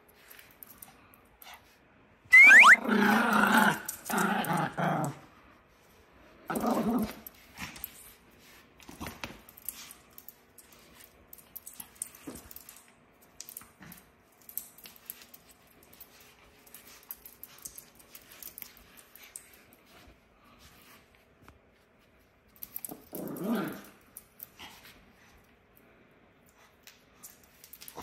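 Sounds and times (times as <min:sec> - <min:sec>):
small dog growling: 0:02.6 - 0:05.2, 0:22.9 - 0:24.0.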